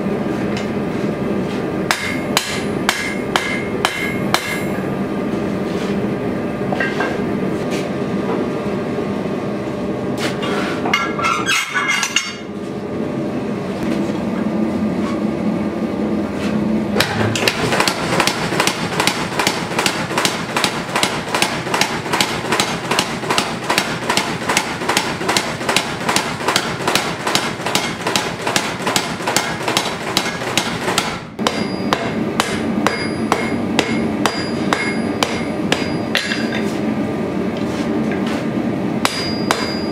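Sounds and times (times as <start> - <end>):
hand hammer striking anvil: 1.9 - 4.7, 17.0 - 36.7, 39.0 - 39.9
power hammer pounding metal: 1.9 - 4.8, 17.0 - 36.6, 39.0 - 39.9.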